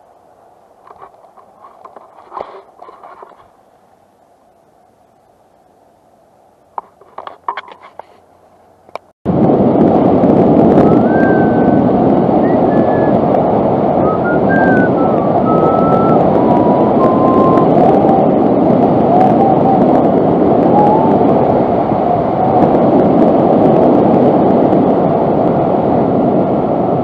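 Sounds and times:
wind buffeting microphone: 8.8s - 27.0s
faint wavering whistles: 10.8s - 11.8s, 12.4s - 13.2s, 14.0s - 18.2s.

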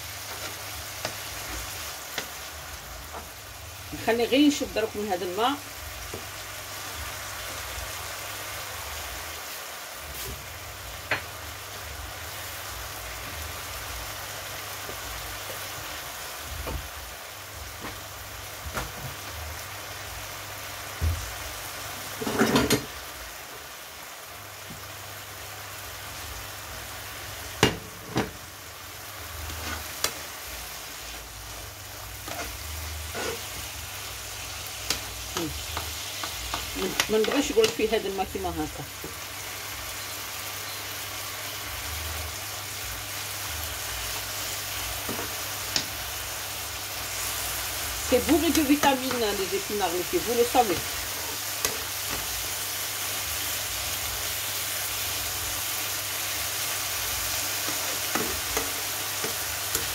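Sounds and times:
spinach sizzling in a frying pan: 0.0s - 59.9s.

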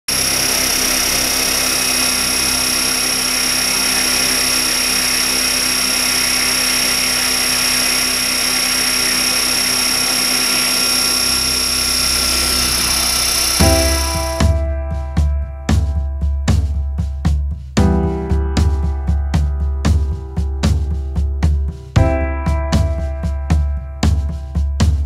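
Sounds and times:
electric motor whine: 0.1s - 14.6s
helicopter rotor noise: 0.1s - 14.6s.

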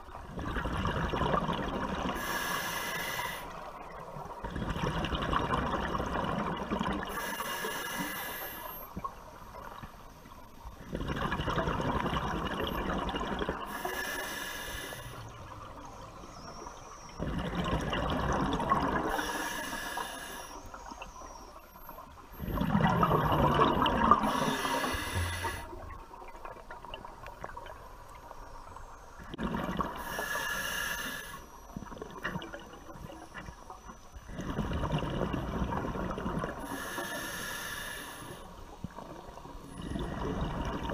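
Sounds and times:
exhaled bubbles rushing: 0.3s - 2.2s, 4.4s - 7.1s, 10.8s - 13.7s, 16.4s - 19.2s, 22.4s - 27.7s, 29.2s - 30.0s, 34.3s - 36.6s, 39.0s - 40.9s
regulator hissing inhalations: 2.2s - 3.6s, 7.1s - 8.8s, 13.7s - 15.2s, 19.1s - 20.8s, 24.2s - 25.8s, 30.0s - 31.5s, 36.6s - 38.5s.

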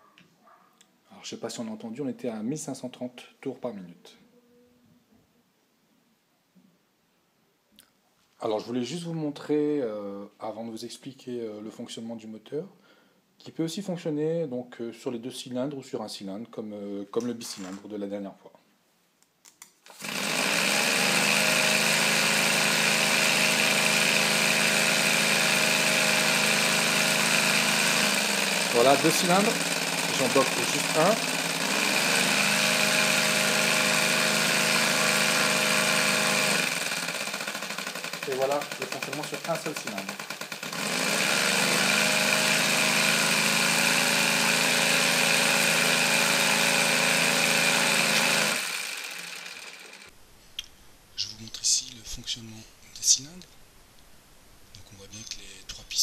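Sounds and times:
compressed air engine running: 19.9s - 50.1s.

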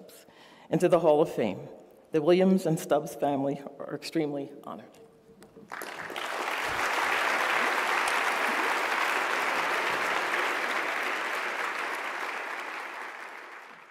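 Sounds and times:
audience applauding: 5.6s - 13.9s.

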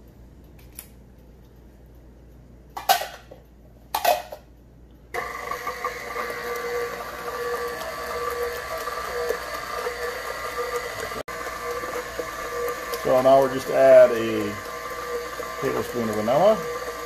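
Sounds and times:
stand mixer motor whine: 5.2s - 17.0s.

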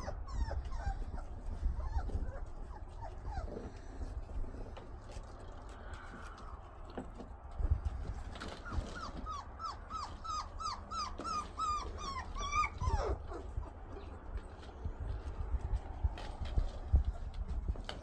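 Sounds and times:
puppy whining: 0.0s - 5.7s, 8.4s - 15.1s.

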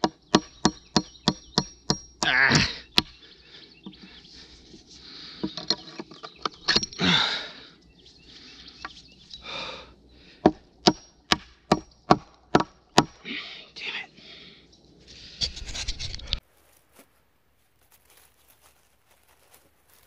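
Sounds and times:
hand tool striking wood: 0.0s - 3.2s, 10.4s - 13.2s.

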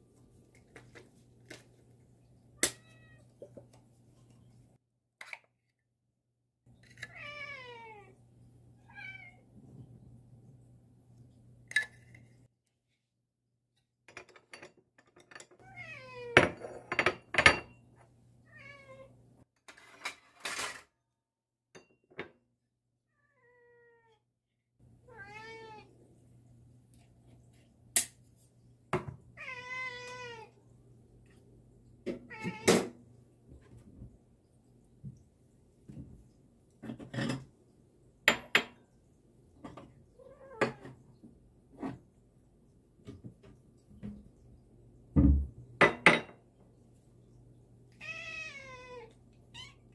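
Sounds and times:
cats meowing: 2.7s - 3.4s, 7.1s - 8.2s, 15.6s - 16.4s, 25.1s - 26.0s, 29.4s - 30.6s, 48.0s - 49.9s.

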